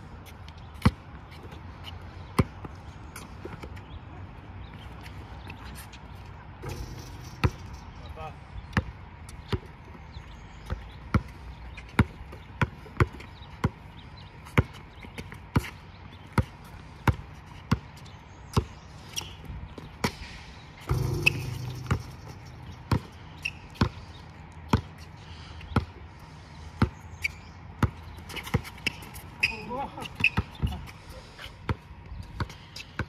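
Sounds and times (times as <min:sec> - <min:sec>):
basketball bouncing: 0:06.6 - 0:08.0, 0:20.9 - 0:23.2.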